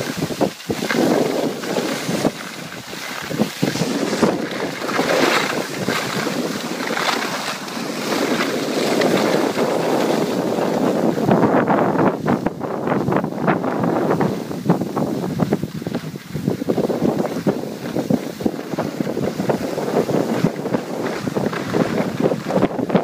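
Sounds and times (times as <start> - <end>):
skis scraping over snow: 0.0 - 23.0
wind buffeting microphone: 0.0 - 23.0.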